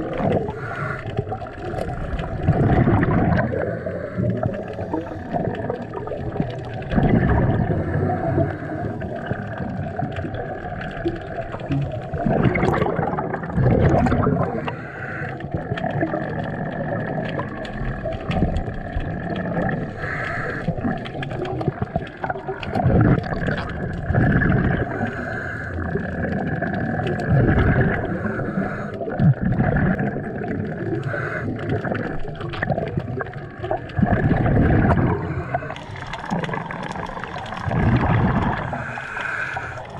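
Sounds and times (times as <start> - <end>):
bubbles gurgling underwater: 0.0 - 39.9
underwater hiss: 0.3 - 1.2, 19.8 - 20.8, 34.9 - 39.9.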